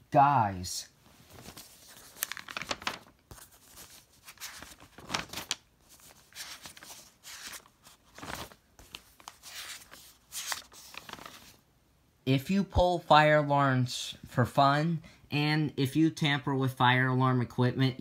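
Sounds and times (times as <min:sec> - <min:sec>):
paper rustling and crinkling: 0:01.1 - 0:11.6.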